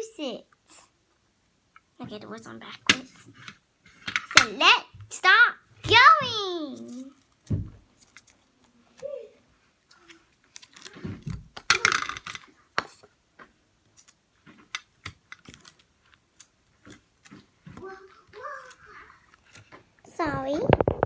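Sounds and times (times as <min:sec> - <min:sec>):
paper rustling: 0:09.9 - 0:11.7, 0:13.9 - 0:20.6.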